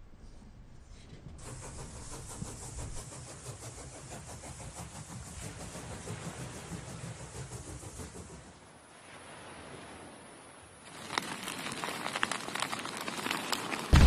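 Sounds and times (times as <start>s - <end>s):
train rumbling: 0.9s - 8.7s.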